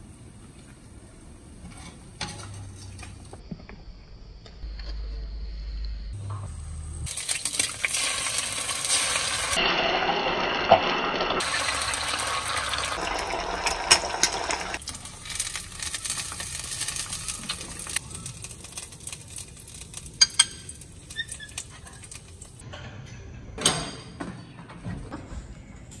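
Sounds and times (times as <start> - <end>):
egg sizzling in oil: 7.1 - 22.6.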